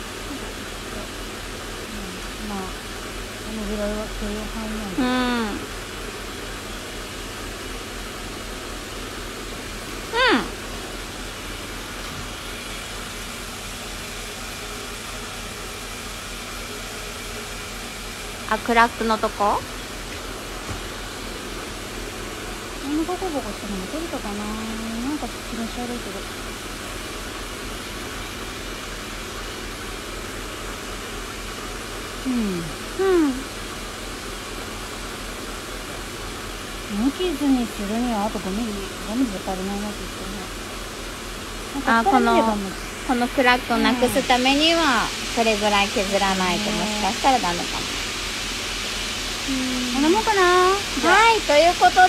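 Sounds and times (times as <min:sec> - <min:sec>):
machine hiss with low hum: 0:00.0 - 0:52.0
person murmuring: 0:32.3 - 0:33.5, 0:41.9 - 0:42.7.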